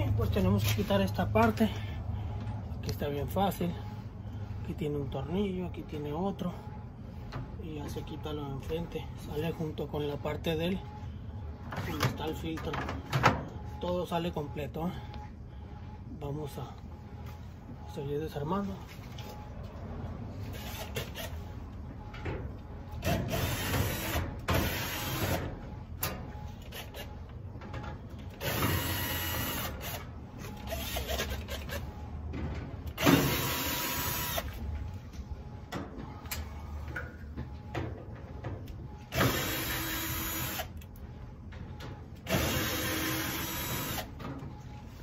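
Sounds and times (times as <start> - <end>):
cordless drill running: 28.4 - 30.0, 33.0 - 34.6, 39.1 - 40.7, 42.3 - 44.1.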